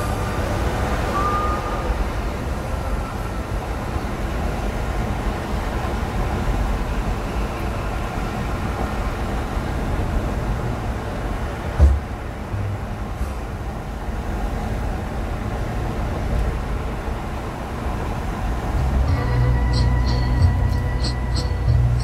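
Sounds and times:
road and tyre noise: 0.0s - 22.0s
car engine hum: 12.0s - 22.0s.

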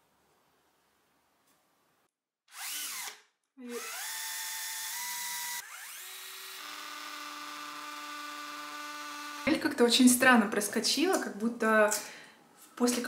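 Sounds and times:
cordless drill boring: 2.5s - 9.6s.

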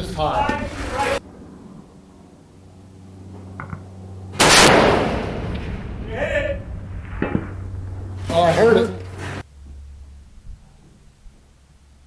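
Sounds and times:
rifle shot: 4.4s - 6.0s, 6.9s - 7.8s.

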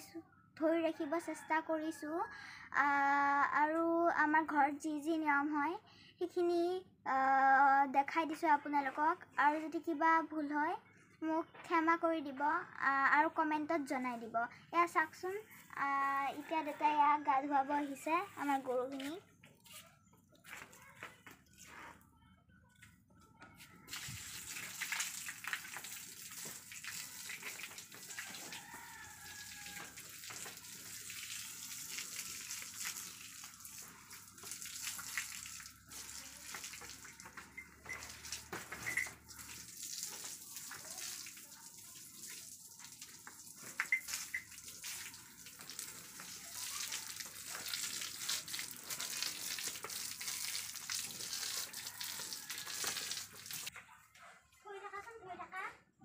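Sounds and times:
water splashing on floor: 23.9s - 53.7s.

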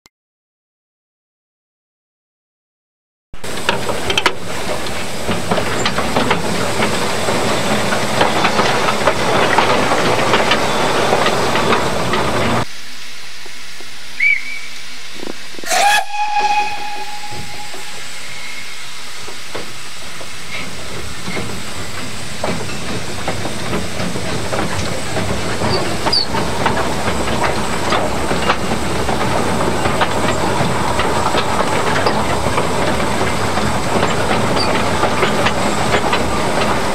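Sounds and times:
steam locomotive running: 3.4s - 36.9s
locomotive whistle blast: 15.6s - 19.2s.

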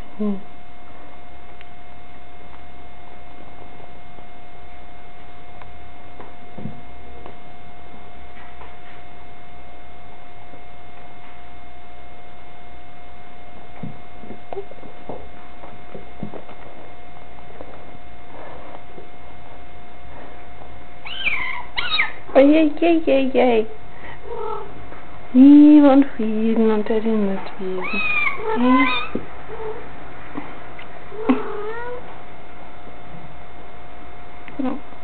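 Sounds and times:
steady electrical hum: 0.0s - 35.0s
cats tapping and scuffling on floor: 13.6s - 19.6s.

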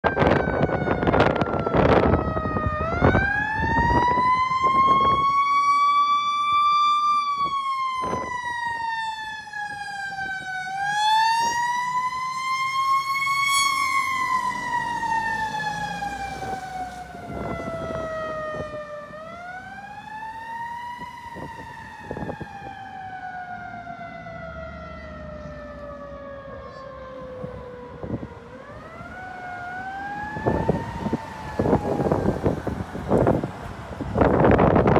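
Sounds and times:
mechanical siren wailing: 0.0s - 34.9s.

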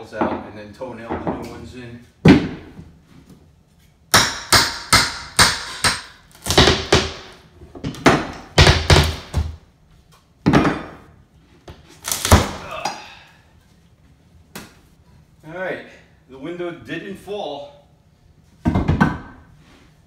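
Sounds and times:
hammer striking wood framing: 2.2s - 2.7s, 4.1s - 9.6s.

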